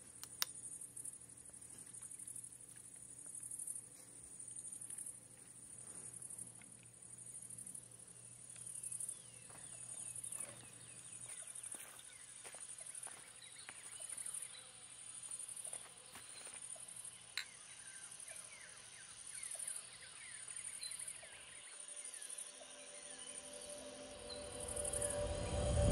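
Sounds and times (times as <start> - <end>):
high-pitched insect drone: 8.7 - 25.9.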